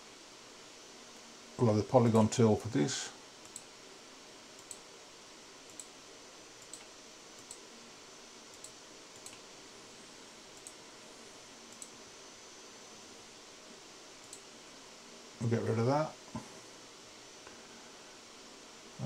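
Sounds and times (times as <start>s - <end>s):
low steady hiss: 0.0s - 19.0s
computer mouse clicking: 3.4s - 3.7s, 4.6s - 4.9s, 5.7s - 6.0s, 6.6s - 7.6s, 8.5s - 9.4s, 10.5s - 10.8s, 11.7s - 12.0s, 14.2s - 14.5s.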